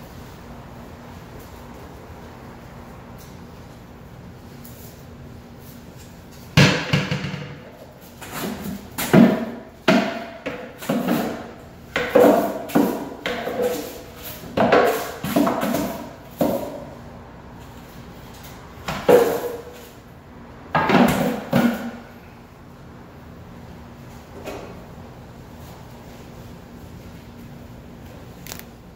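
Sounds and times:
broom knocking on cabinet shelves: 6.6 - 7.7.

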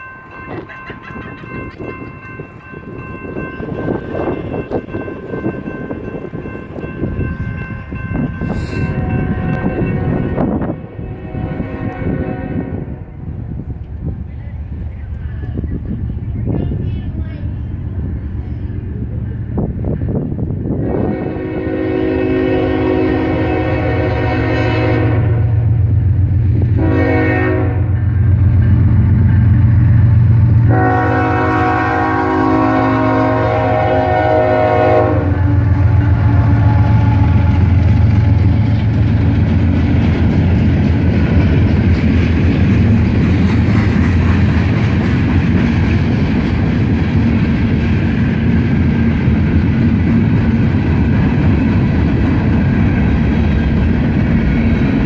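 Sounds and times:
freight cars wheels clacking on rails: 0.0 - 8.5
locomotive low rumble: 0.0 - 55.0
locomotive air horn blasts: 8.5 - 13.1, 20.8 - 25.6, 26.8 - 28.0, 30.6 - 38.6.

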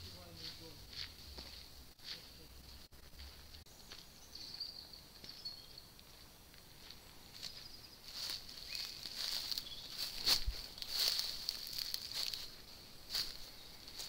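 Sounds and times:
footsteps crunching on dry leaves: 0.0 - 14.0
small birds chirping and trilling: 3.6 - 14.0.

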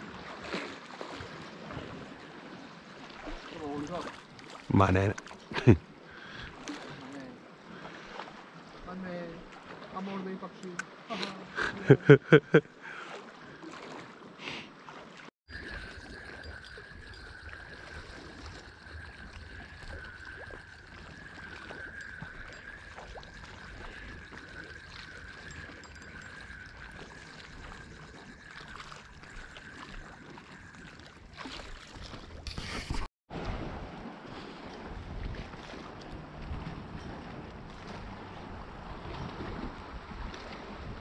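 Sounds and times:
sea water moving at shore: 0.0 - 41.0
wind on microphone: 15.5 - 41.0.

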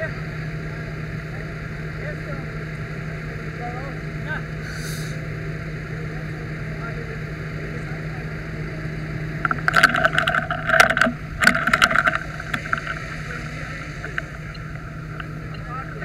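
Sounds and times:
fire engine humming: 0.0 - 16.0
fire hose spraying water: 4.6 - 5.2, 11.7 - 16.0.

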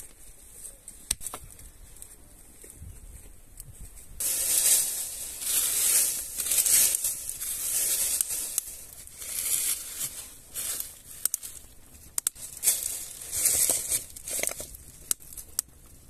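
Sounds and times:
dry leaves rustling and crunching: 4.2 - 15.6.

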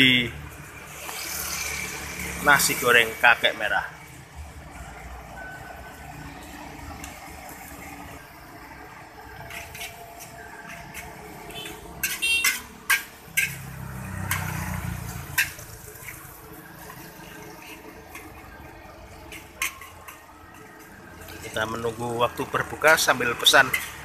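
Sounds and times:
sizzling hiss of frying: 0.0 - 4.5, 5.8 - 24.0
metal spatula clanking on wok: 9.4 - 18.5, 19.3 - 21.5, 22.9 - 24.0.

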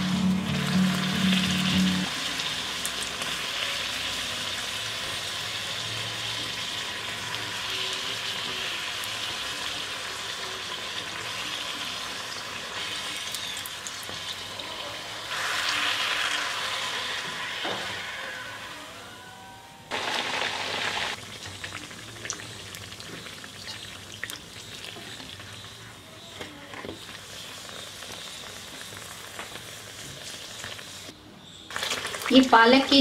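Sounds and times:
background music: 0.0 - 2.1
food sizzling in hot oil: 0.0 - 31.1, 31.7 - 33.0.

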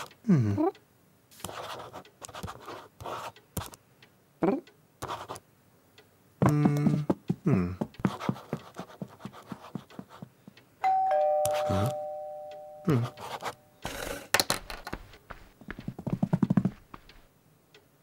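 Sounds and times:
pen scratching on paper: 1.4 - 3.8, 5.0 - 5.4, 8.0 - 10.3.

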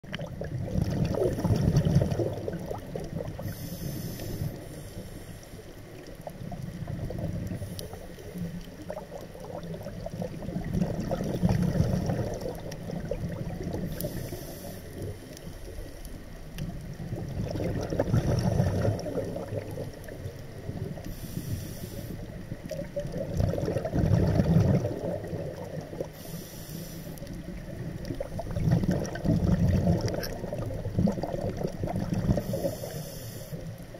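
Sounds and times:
bubbling exhaled air underwater: 0.0 - 33.9
regulator hissing inhalation: 3.4 - 5.7, 13.9 - 15.0, 21.1 - 22.2, 26.2 - 27.2, 32.4 - 33.7.

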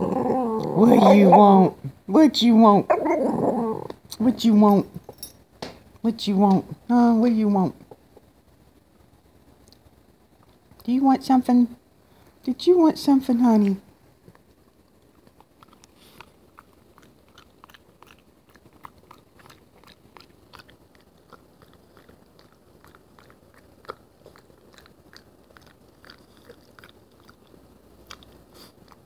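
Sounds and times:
dog chewing nut crunches: 14.3 - 29.0.

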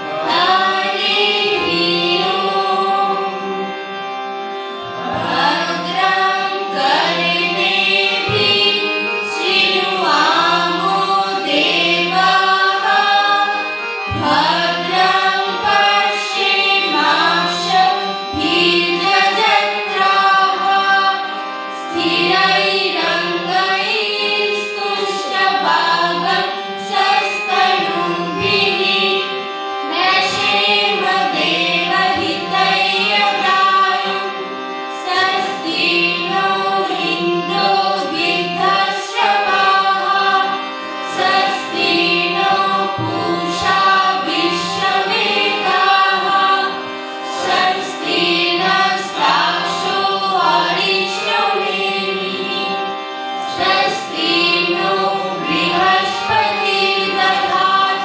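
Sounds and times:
group singing devotional song: 0.0 - 3.7, 5.0 - 58.0
harmonium sustained notes: 0.0 - 58.0.

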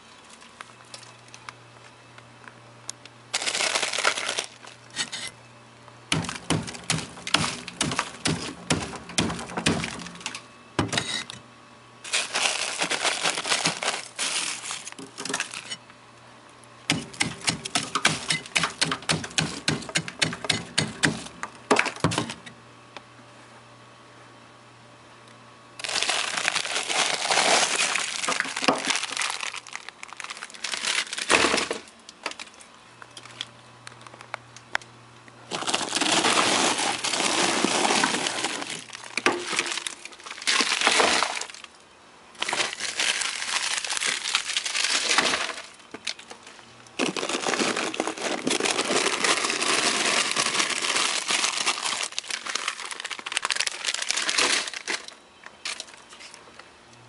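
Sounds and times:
ice crunching and crackling: 3.3 - 5.3, 6.1 - 10.4, 12.0 - 15.8, 25.8 - 34.2, 35.4 - 56.4.

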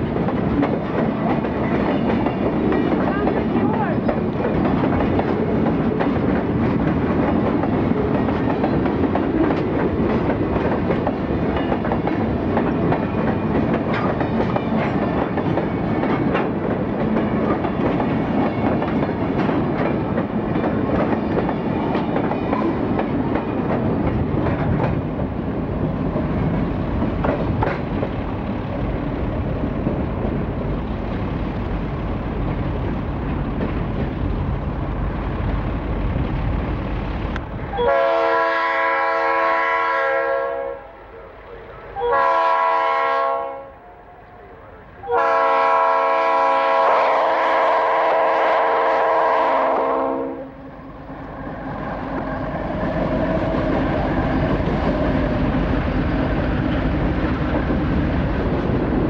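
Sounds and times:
train wheels rumbling on rails: 0.0 - 59.0
wheels clicking over rail joints: 0.1 - 25.3.

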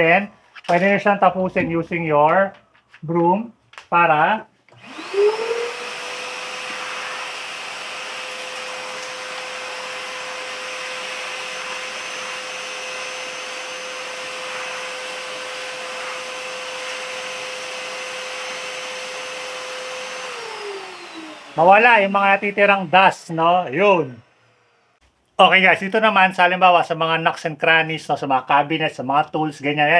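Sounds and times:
vacuum cleaner motor whine: 4.7 - 25.0.

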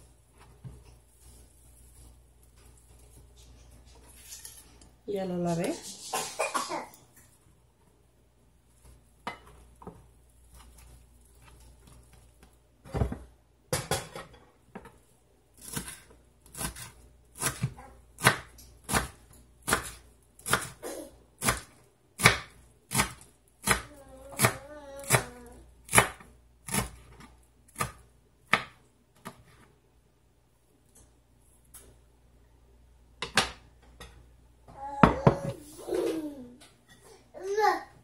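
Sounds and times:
knife chopping on plastic board: 15.6 - 20.8, 21.4 - 25.3, 25.9 - 29.4.

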